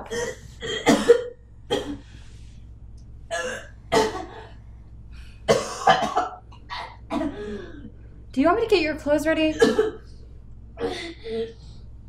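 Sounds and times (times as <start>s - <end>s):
woman coughing and retching: 0.0s - 2.0s, 3.3s - 4.5s, 5.5s - 7.9s, 9.5s - 10.0s.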